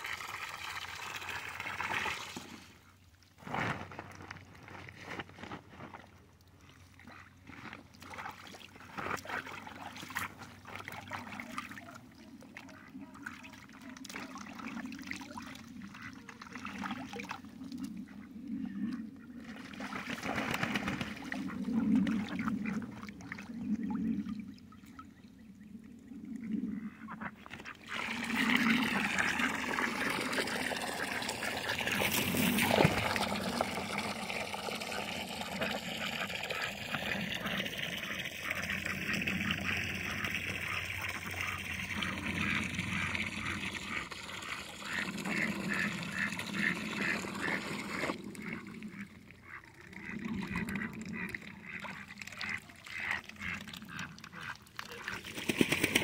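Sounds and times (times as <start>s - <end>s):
water running and trickling: 28.0s - 48.0s.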